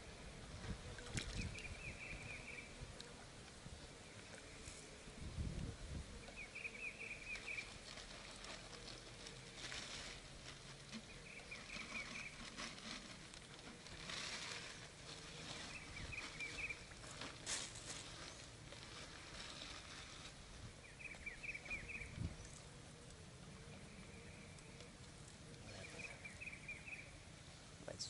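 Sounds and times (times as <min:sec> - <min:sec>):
rustling and handling noise: 0:07.2 - 0:22.7.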